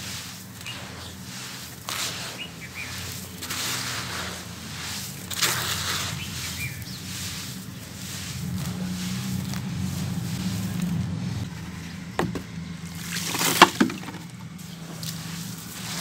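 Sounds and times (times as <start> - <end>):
gritty crumbling of falling grains: 0.0 - 16.0
sand mix crunches: 0.0 - 16.0.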